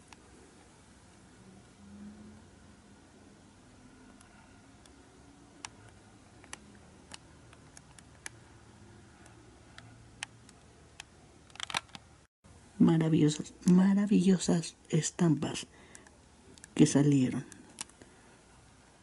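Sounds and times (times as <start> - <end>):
plastic sleeve pages clicking: 10.2 - 12.0.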